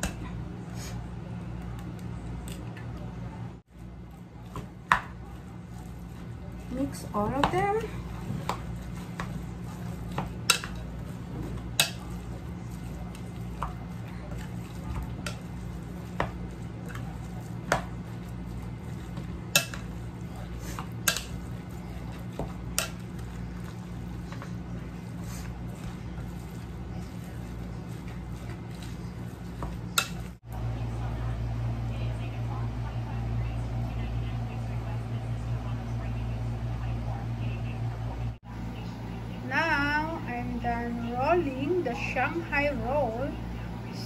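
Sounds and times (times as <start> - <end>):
steady low hum: 0.0 - 44.0
spoon stirring filling in bowl: 4.4 - 30.4.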